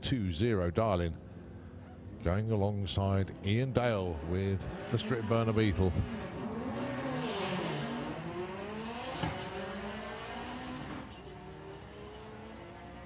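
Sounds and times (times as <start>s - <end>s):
car engines revving: 2.7s - 13.0s.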